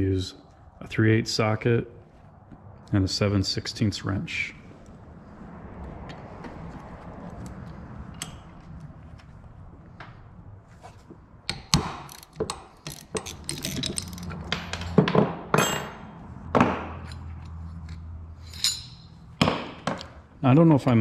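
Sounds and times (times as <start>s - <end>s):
ratchet clicking: 11.5s - 14.3s
metal clinks and knocks: 11.5s - 20.1s.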